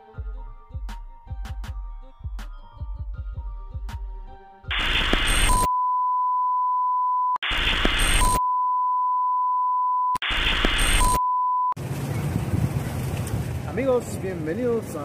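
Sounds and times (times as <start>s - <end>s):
static hiss bursts: 4.7s - 5.7s, 7.4s - 8.4s, 10.2s - 11.2s
test-tone beep: 4.7s - 11.8s.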